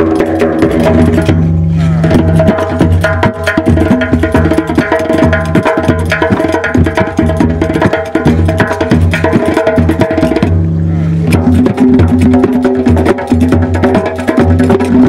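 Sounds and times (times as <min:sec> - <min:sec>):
low sustained tone: 0:00.0 - 0:03.0, 0:10.4 - 0:11.8
goblet drum strokes: 0:00.0 - 0:04.5, 0:08.2 - 0:15.0
frame drums: 0:00.0 - 0:15.0.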